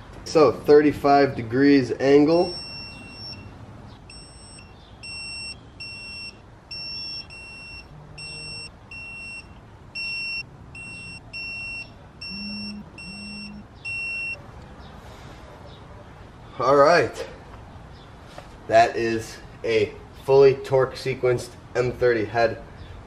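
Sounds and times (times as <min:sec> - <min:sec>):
torque wrench beeping: 0:02.4 - 0:14.4.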